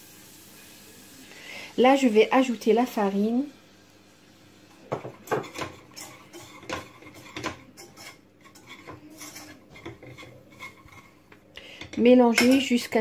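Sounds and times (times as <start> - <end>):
whisk scraping a saucepan: 4.9 - 12.0.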